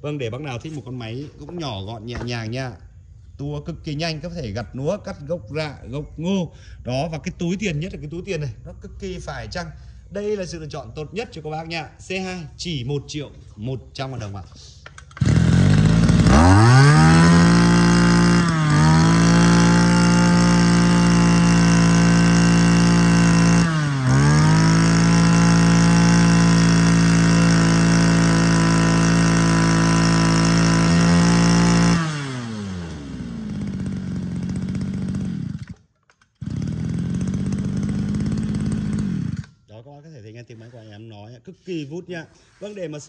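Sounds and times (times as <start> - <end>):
brush cutter engine idling: 0.3 - 2.8, 13.3 - 39.6
brush cutter engine revving: 14.2 - 39.6.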